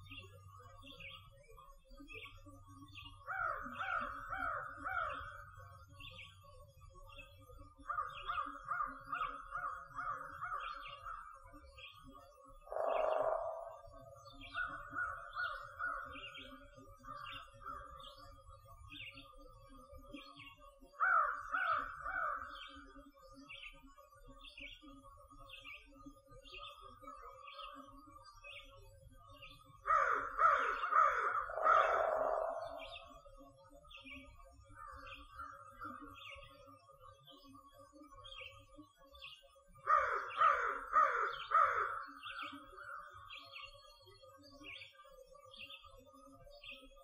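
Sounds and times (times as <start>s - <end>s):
crows cawing: 3.3s - 5.2s, 12.7s - 13.9s, 21.0s - 22.4s, 29.9s - 33.1s, 39.8s - 42.2s
small bird chirping: 12.7s - 16.4s, 31.4s - 33.2s.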